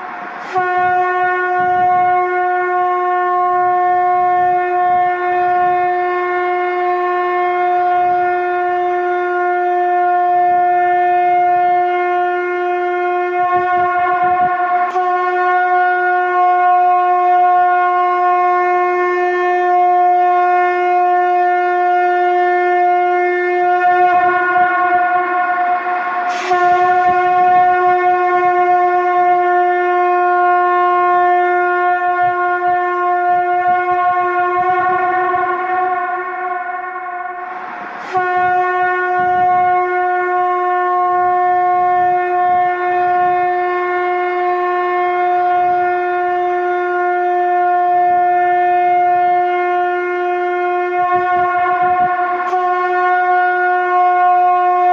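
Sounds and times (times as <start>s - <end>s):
conch shell blown: 0.0s - 54.9s.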